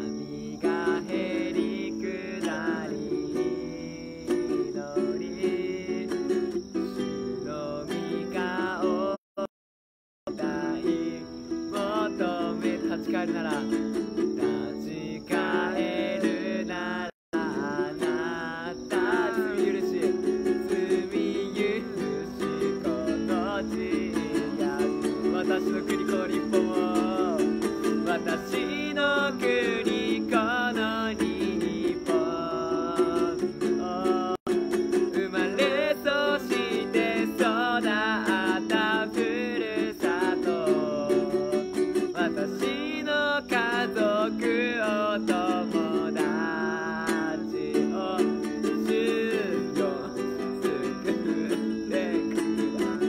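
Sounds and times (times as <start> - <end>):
men singing worship song: 0.0 - 6.2, 10.3 - 13.8, 14.4 - 34.5, 35.1 - 53.0
plucked string accompaniment: 17.4 - 53.0.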